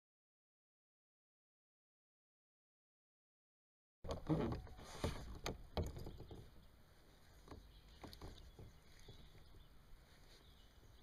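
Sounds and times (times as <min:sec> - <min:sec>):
faint taps and knocks in kayak: 0:04.1 - 0:11.0.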